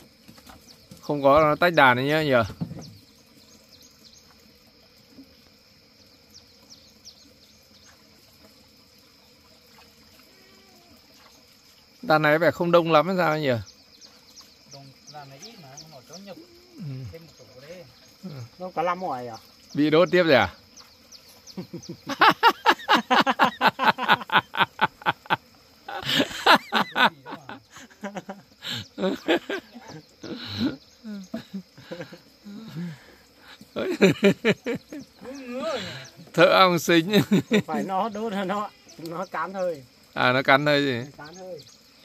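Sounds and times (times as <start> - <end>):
high insect drone: 0.0 - 42.0
person laughing hard: 21.6 - 36.1.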